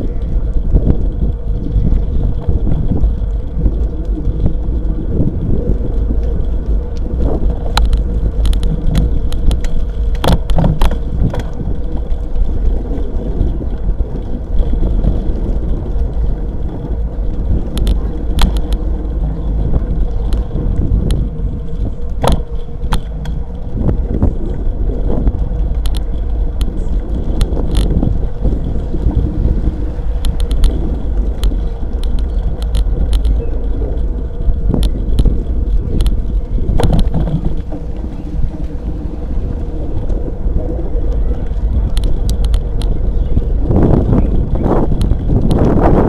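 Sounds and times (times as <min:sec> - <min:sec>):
bike clicks and rattles: 0:00.0 - 0:46.0
tyres rolling on rough asphalt: 0:00.0 - 0:46.0
wind noise on microphone: 0:00.0 - 0:46.0.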